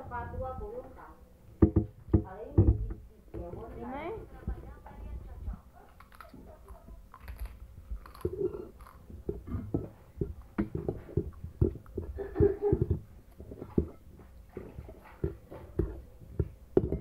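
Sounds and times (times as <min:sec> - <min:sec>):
child chewing and crunching food: 0:05.6 - 0:17.0
spoon scraping a ceramic plate: 0:08.2 - 0:11.4.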